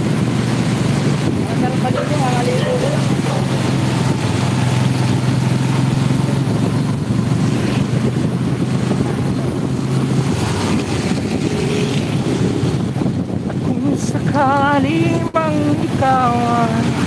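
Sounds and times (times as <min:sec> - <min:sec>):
vehicle engine humming: 0:00.0 - 0:17.0
wind on microphone: 0:00.0 - 0:17.0.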